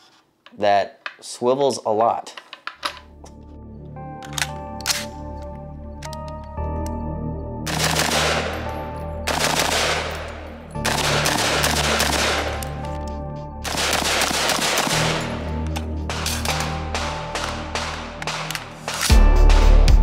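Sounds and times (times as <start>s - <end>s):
rifle firing rapid shots: 7.7s - 12.8s, 13.6s - 15.5s, 16.1s - 19.1s.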